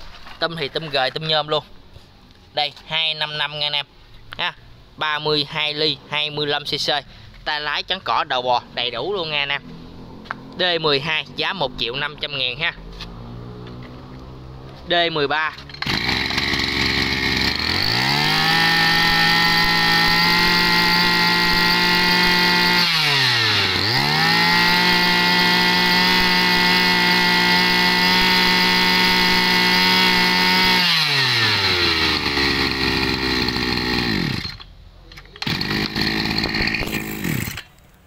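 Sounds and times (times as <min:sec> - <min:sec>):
brush cutter engine revving: 0:15.5 - 0:37.8.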